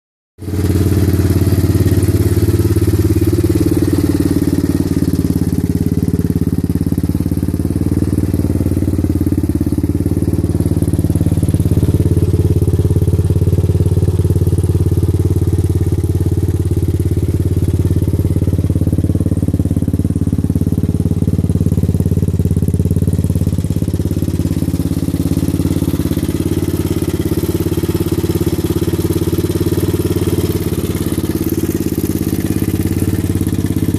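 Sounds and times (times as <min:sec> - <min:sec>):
motorcycle engine idling: 0:00.4 - 0:33.9.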